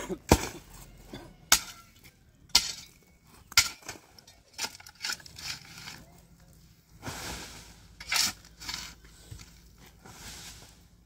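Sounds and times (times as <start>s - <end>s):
pickaxe striking stony ground: 0.0s - 0.7s, 1.4s - 6.0s.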